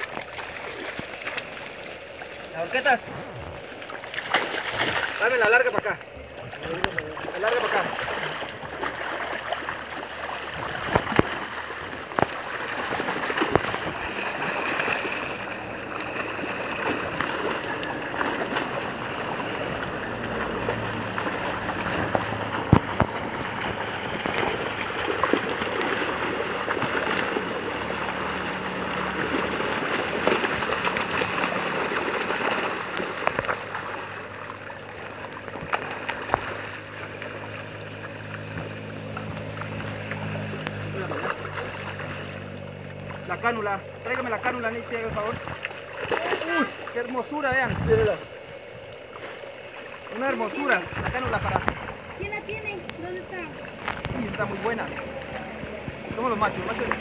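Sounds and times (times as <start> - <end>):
sharp water slaps: 0.0 - 2.9, 3.6 - 47.6, 48.3 - 57.0
fish thrashing in water: 0.0 - 57.0.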